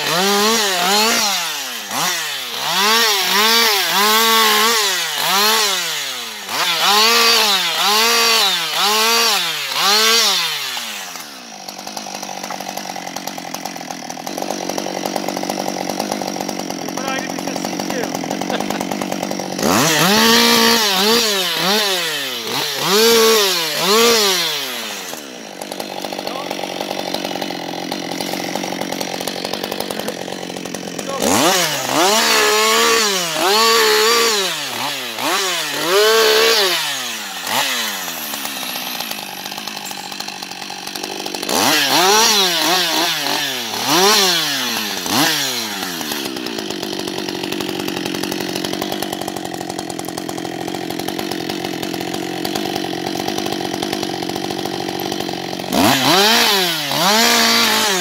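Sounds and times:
chainsaw revving and idling: 0.0s - 58.0s.

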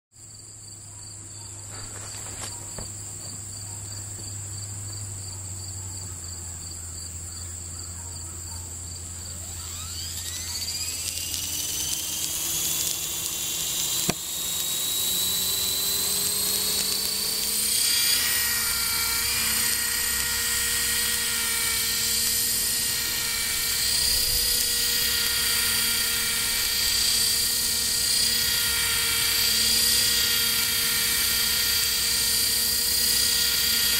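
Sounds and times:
model helicopter rotor whine: 0.8s - 33.9s
sharp click: 10.1s - 14.7s.

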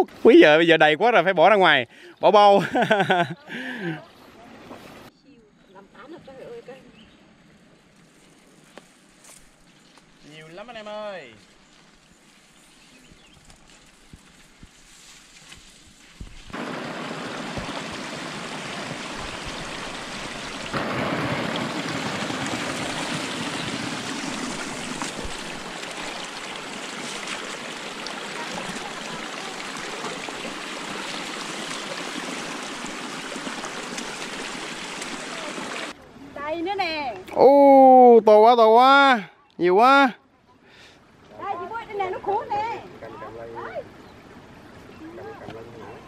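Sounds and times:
flowing water rushing: 15.8s - 36.0s.

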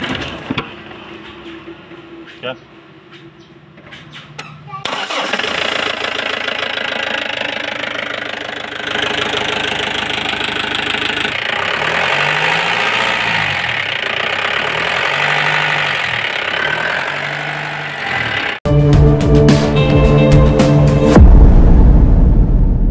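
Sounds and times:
diesel engine idling: 4.9s - 18.6s.

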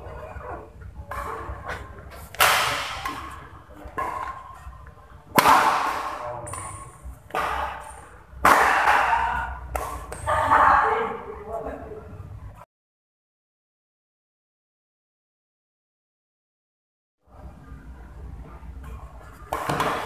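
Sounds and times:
rackets hitting shuttlecock: 0.0s - 10.6s, 19.3s - 20.0s
hall echo: 0.0s - 12.1s.

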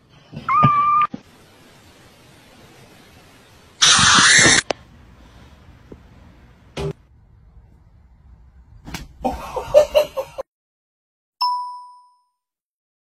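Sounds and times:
kitten mewing: 0.5s - 1.1s
loud harsh hissing burst: 0.8s - 4.7s.

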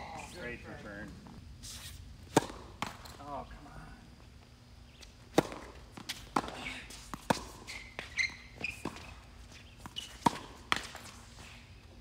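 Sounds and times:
tennis ball bouncing on hard court: 2.3s - 3.2s, 5.0s - 11.4s
tennis ball struck by rackets: 2.3s - 3.2s, 5.3s - 11.3s.

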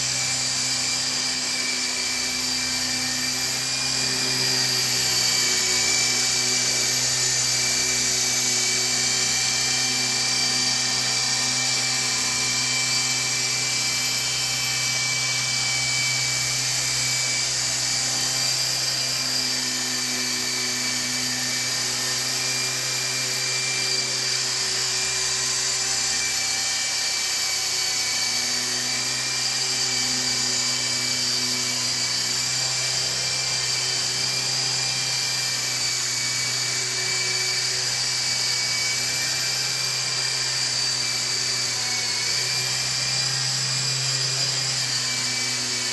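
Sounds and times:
small helicopter motor whine: 0.0s - 45.9s.

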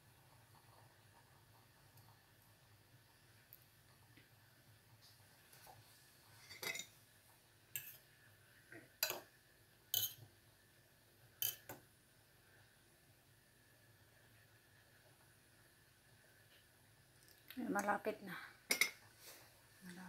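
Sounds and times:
metal fork clinking on pot: 6.5s - 6.9s, 7.8s - 8.0s, 9.0s - 9.3s, 9.9s - 10.2s, 11.4s - 11.8s, 18.7s - 19.0s.

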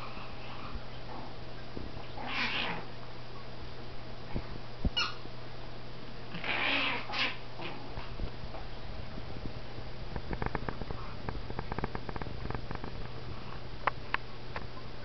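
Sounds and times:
dogs play growling: 0.0s - 3.0s, 6.3s - 8.7s.

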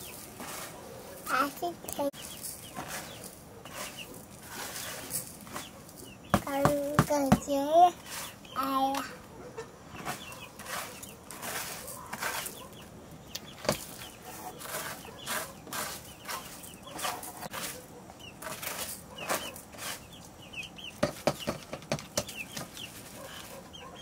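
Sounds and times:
rice grains rustling and scraping: 0.0s - 6.1s, 10.0s - 12.6s, 13.8s - 20.1s
chickens clucking: 0.0s - 24.0s.

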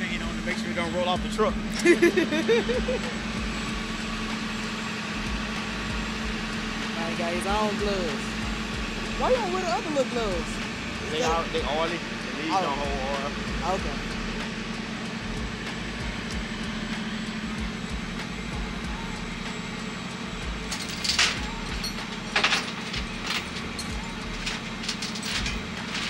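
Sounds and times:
truck engine idling: 0.0s - 26.0s
metallic clanks of tow chains: 20.7s - 26.0s.

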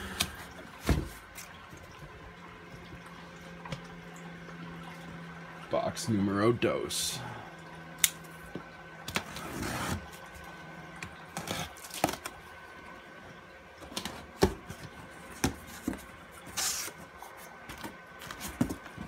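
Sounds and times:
cardboard flaps scraping and rustling: 9.1s - 10.2s, 14.0s - 19.0s.

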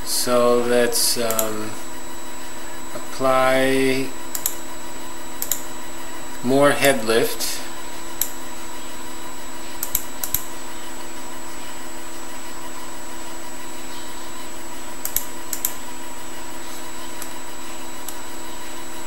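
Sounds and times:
electrical hum: 0.0s - 19.0s
short clicks: 4.3s - 4.6s.

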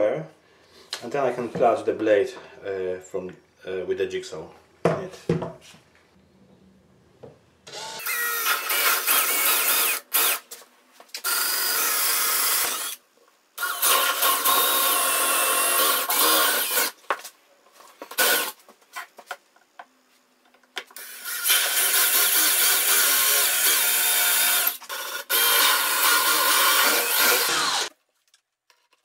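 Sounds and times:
cordless drill boring: 13.6s - 16.9s, 18.2s - 18.5s, 21.0s - 27.9s.

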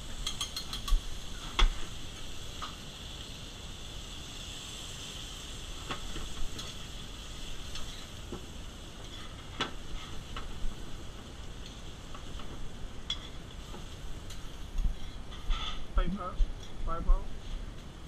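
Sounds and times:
food sizzling in a pan: 0.0s - 18.0s
metal spoon clicking on pan: 0.2s - 1.0s.

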